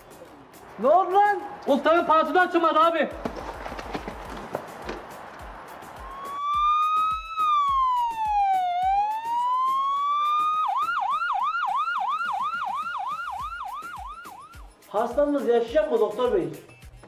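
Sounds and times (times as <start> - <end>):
ambulance siren wailing and yelping: 6.0 - 14.7.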